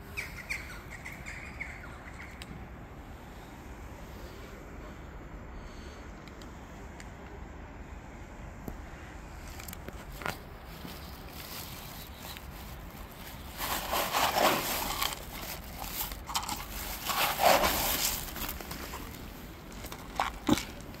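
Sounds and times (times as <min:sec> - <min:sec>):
kibble pattering on paving stones: 0:09.5 - 0:21.0.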